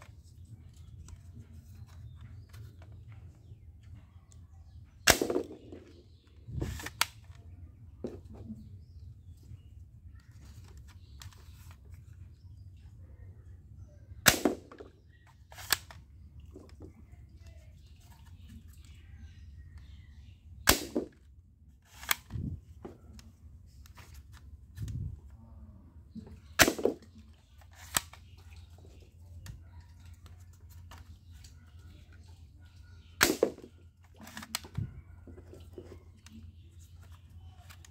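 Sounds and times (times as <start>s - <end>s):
toy shotgun plastic snaps: 5.1s - 6.0s, 6.6s - 7.6s, 14.2s - 16.1s, 21.8s - 22.6s, 26.5s - 28.4s, 33.2s - 34.8s.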